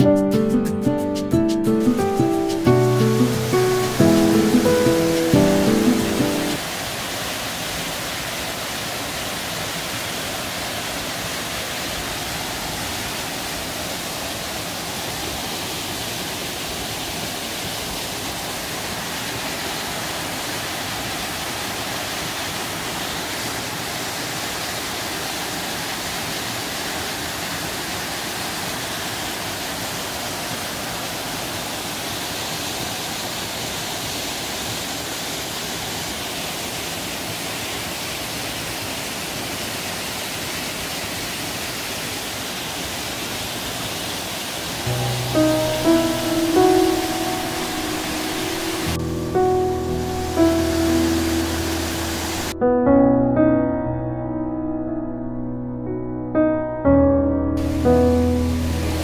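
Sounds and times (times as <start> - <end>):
waterfall rushing: 0.4 - 52.6, 57.6 - 59.0.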